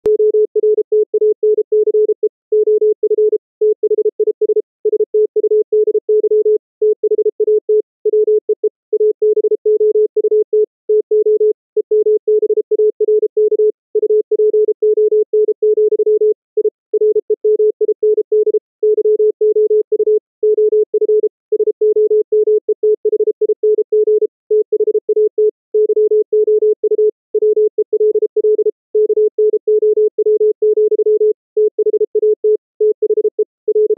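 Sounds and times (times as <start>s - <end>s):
morse code sine tone: 0.1s - 33.9s.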